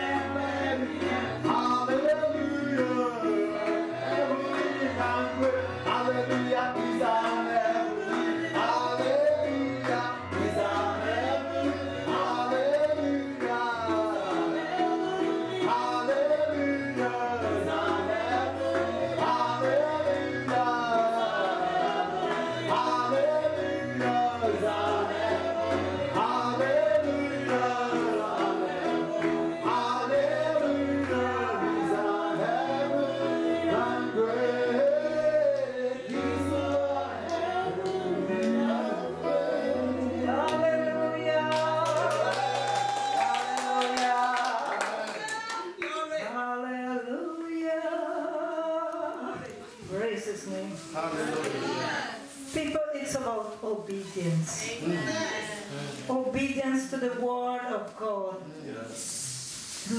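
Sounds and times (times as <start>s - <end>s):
keyboard accompaniment: 0.0s - 44.7s
voices singing together: 0.0s - 45.9s.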